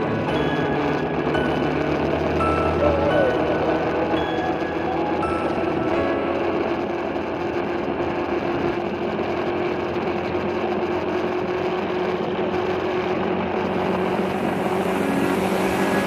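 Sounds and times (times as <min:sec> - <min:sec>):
motorcycle engine running: 0:00.0 - 0:16.0.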